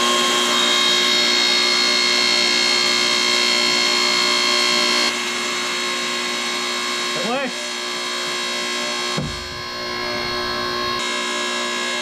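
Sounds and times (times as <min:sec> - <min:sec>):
hydraulic pump whining: 0:09.0 - 0:11.0.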